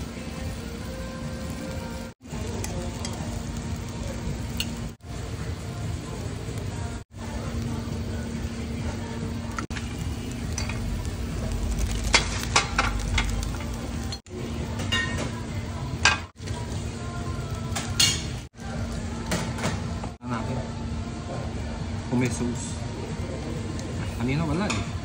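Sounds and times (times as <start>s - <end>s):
meat sizzling on hot stone plate: 0.2s - 8.2s
tableware clinking: 14.8s - 15.4s.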